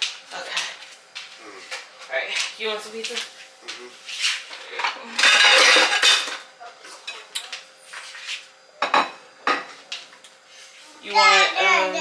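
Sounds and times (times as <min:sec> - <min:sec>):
plates clattering: 0:04.8 - 0:06.5, 0:08.8 - 0:09.8.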